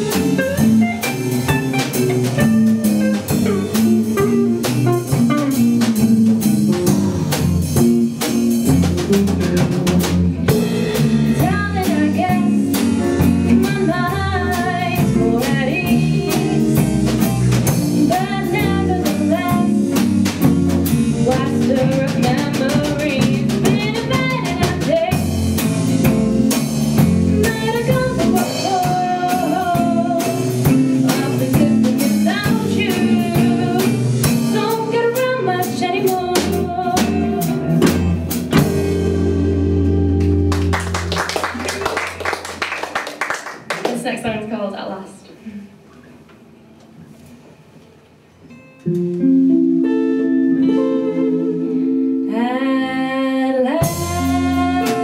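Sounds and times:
drum kit: 0:00.0 - 0:44.4, 0:53.7 - 0:55.0
woman singing: 0:11.3 - 0:17.2, 0:18.0 - 0:20.0, 0:21.2 - 0:25.4, 0:27.3 - 0:37.6, 0:50.7 - 0:55.0.

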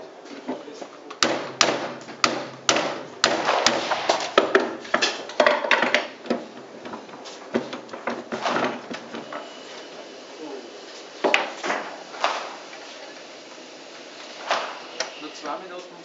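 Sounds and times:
small cannons firing: 0:01.3 - 0:04.4.

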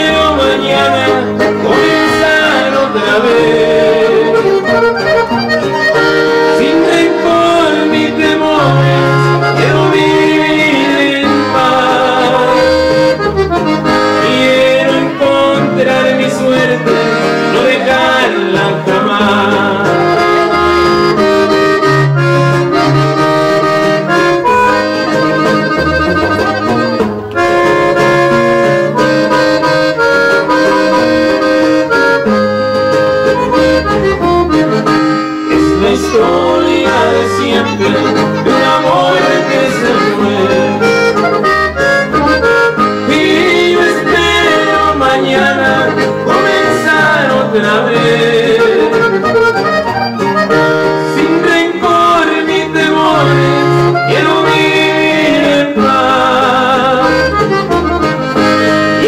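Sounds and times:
bass notes: 0:00.0 - 0:59.0
button accordion melody: 0:00.0 - 0:59.0
guitar strumming: 0:00.0 - 0:59.0.

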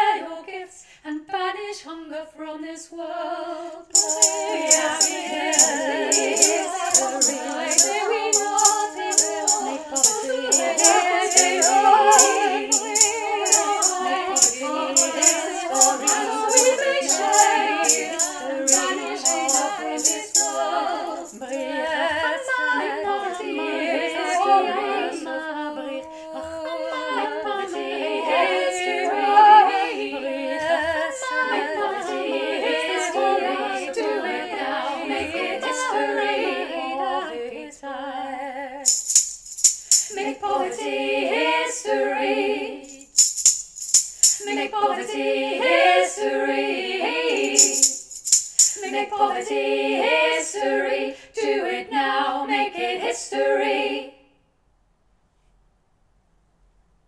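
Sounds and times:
woman singing a cappella harmony: 0:00.0 - 0:38.8, 0:40.0 - 0:42.8, 0:44.2 - 0:48.0, 0:48.6 - 0:54.2
shaker beat: 0:04.0 - 0:21.7, 0:38.9 - 0:40.4, 0:42.8 - 0:45.1, 0:47.1 - 0:49.4.

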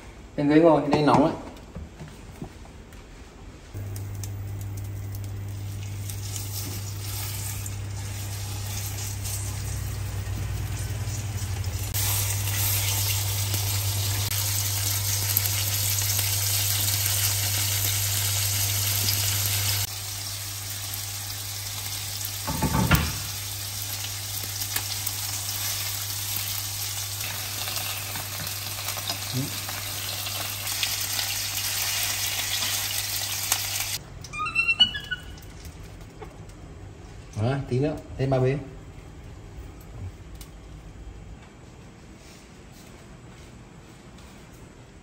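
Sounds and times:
chicken sizzling in hot oil: 0:04.3 - 0:34.0.

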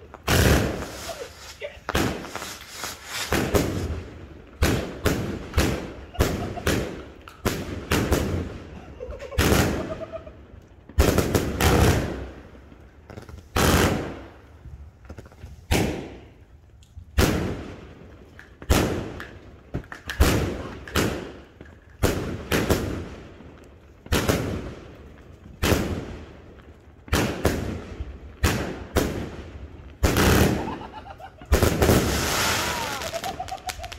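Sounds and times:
firework cake firing shots: 0:00.2 - 0:04.0, 0:04.6 - 0:10.2, 0:10.9 - 0:12.4, 0:13.2 - 0:14.4, 0:15.6 - 0:16.4, 0:17.1 - 0:17.9, 0:18.6 - 0:23.3, 0:24.1 - 0:24.8, 0:25.6 - 0:26.2, 0:27.0 - 0:30.8, 0:31.5 - 0:33.9.

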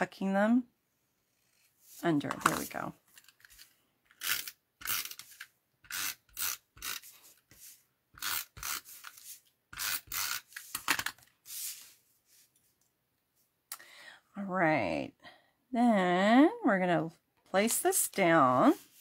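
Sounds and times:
rubbing strokes on card: 0:01.3 - 0:02.7, 0:04.2 - 0:10.8, 0:11.4 - 0:12.5, 0:18.6 - 0:19.0.

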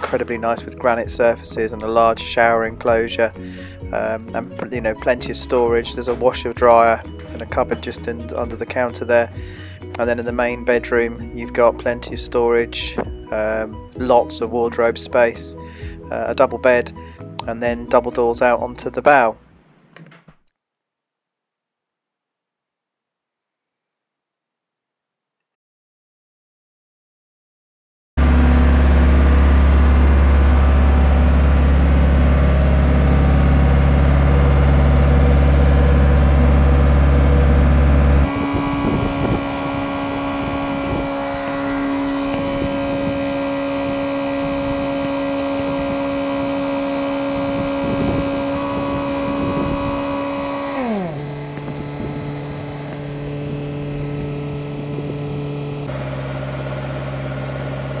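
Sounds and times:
hoist engine running: 0:00.0 - 0:14.5, 0:28.2 - 0:58.0.

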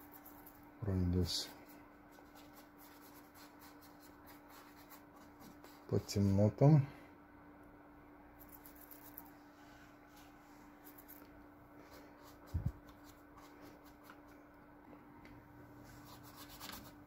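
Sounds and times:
faint steady hum: 0:00.0 - 0:17.0
brush strokes on canvas: 0:09.4 - 0:10.8.

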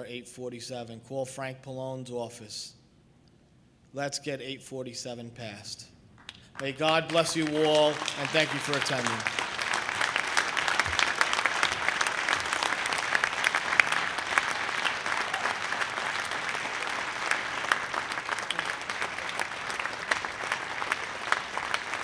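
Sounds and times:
audience applauding: 0:06.2 - 0:22.0.

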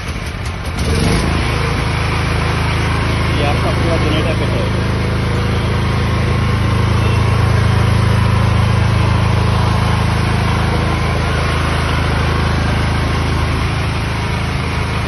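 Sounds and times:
petrol generator engine running: 0:00.0 - 0:15.0.

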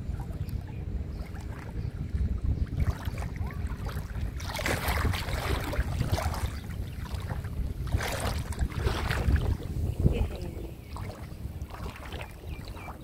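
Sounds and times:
paddle splashing water: 0:00.0 - 0:13.0
wind rumbling on microphone: 0:00.0 - 0:13.0.

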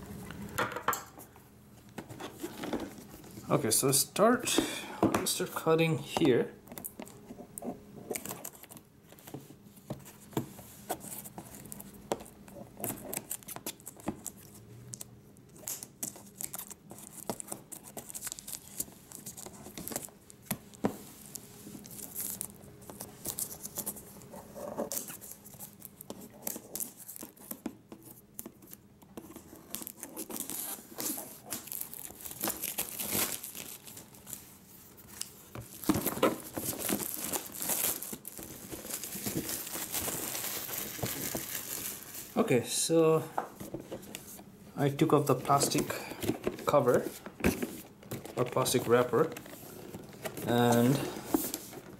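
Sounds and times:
plastic film crinkling: 0:11.0 - 0:42.5.

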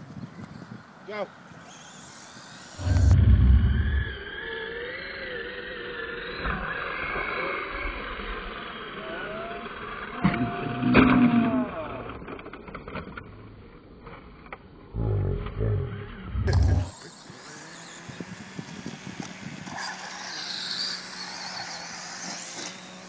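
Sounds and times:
electric motor whines: 0:01.6 - 0:12.6, 0:16.0 - 0:23.0
low rumbles: 0:02.8 - 0:04.2, 0:14.9 - 0:16.9.

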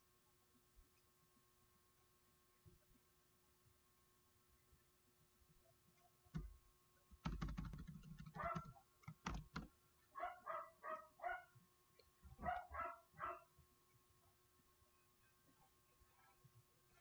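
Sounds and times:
computer keyboard and mouse clicks: 0:06.3 - 0:06.6, 0:07.2 - 0:09.7
dog barking: 0:08.4 - 0:08.8, 0:10.2 - 0:11.6, 0:12.4 - 0:13.5.

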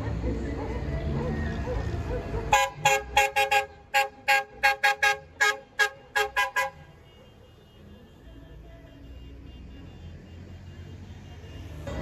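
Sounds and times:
bus air horn toots: 0:02.5 - 0:12.0.

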